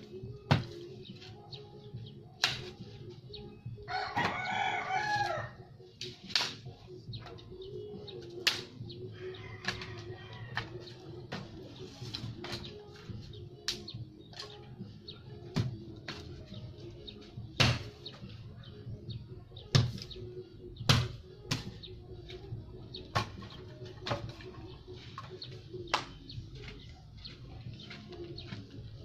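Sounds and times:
dry branches snapping: 0:02.4 - 0:02.8, 0:06.0 - 0:06.6, 0:08.4 - 0:08.7, 0:13.7 - 0:14.6
rooster crowing: 0:03.9 - 0:05.6.

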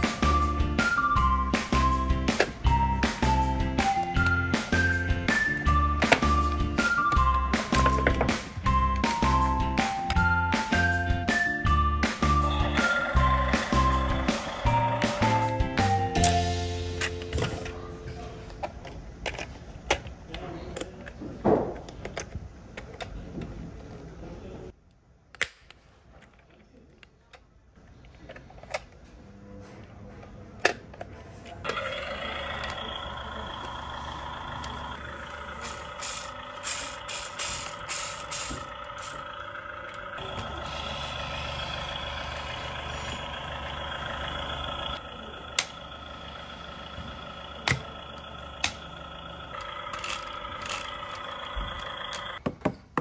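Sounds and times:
electronic droning: 0:31.7 - 0:52.4.

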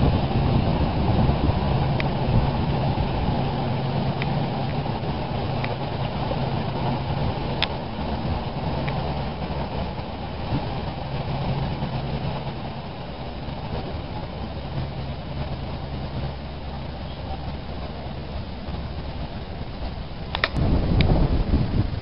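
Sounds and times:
train engine hum: 0:00.0 - 0:22.0
train rumble from inside carriage: 0:00.0 - 0:22.0.

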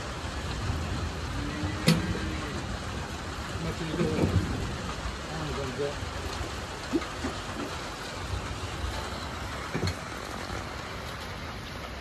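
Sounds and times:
steady rain falling: 0:00.0 - 0:12.0.

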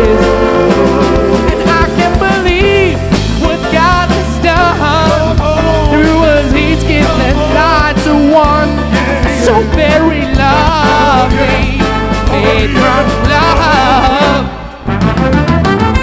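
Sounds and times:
person singing lead vocal: 0:00.0 - 0:14.9
pop band with bass and beat: 0:00.0 - 0:16.0.

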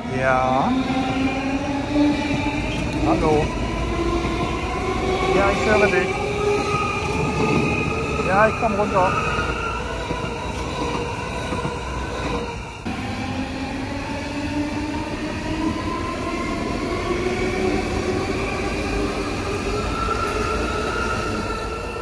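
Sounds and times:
electric train rumbling: 0:00.0 - 0:22.0
train drive whining: 0:00.0 - 0:22.0.

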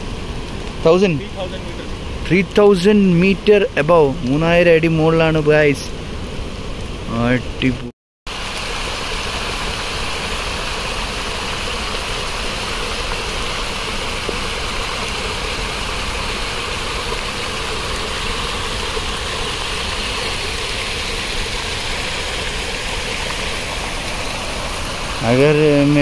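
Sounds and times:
water rushing in a stream: 0:08.3 - 0:26.0.

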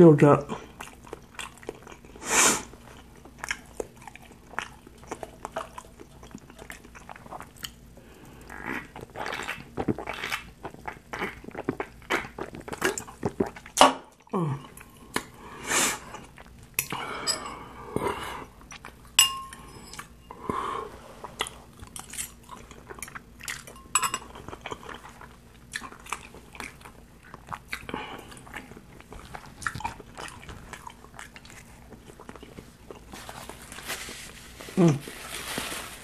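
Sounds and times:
chewing and mouth sounds: 0:00.5 - 0:15.4, 0:16.0 - 0:17.4, 0:18.0 - 0:20.2, 0:21.2 - 0:33.6
fork clinking on glass bowl: 0:19.2 - 0:20.1, 0:23.7 - 0:24.3.

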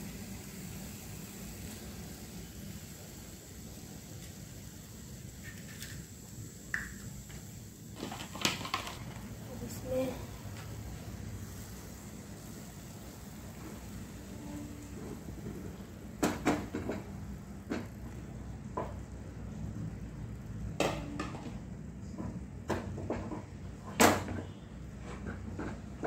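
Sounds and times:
egg sizzling in a pan: 0:00.0 - 0:19.1
kitchen knocks and clatters: 0:08.0 - 0:09.2, 0:16.2 - 0:17.1, 0:20.8 - 0:26.0.

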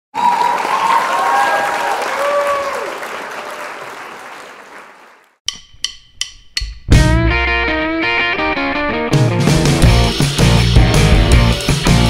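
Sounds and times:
crowd cheering and applauding: 0:00.1 - 0:05.4.

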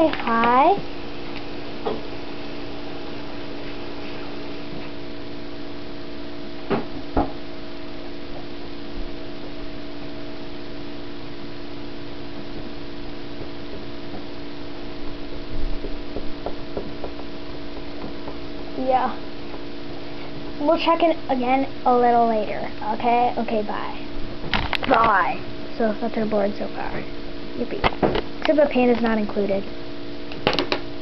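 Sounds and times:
low electrical hum: 0:00.0 - 0:31.0
knocks on tabletop: 0:06.7 - 0:07.4.

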